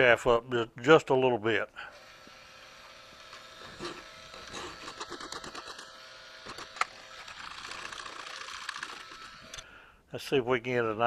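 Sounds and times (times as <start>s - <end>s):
hand file scraping steel: 3.3s - 5.8s.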